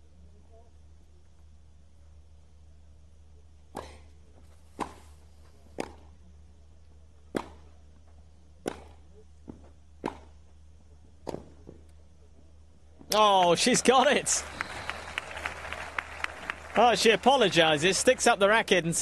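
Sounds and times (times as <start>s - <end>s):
tennis ball hit by rackets: 4.8s - 5.0s, 5.8s - 6.1s, 7.3s - 7.7s, 8.6s - 9.0s, 10.0s - 10.4s.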